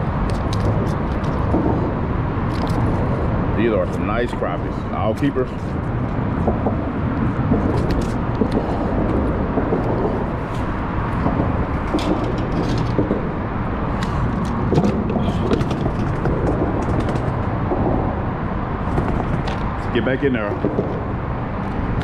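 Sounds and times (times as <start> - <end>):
low rumbling background noise: 0.0 - 22.0
hands clicking and rustling: 0.2 - 1.8, 2.5 - 3.0, 5.8 - 18.0.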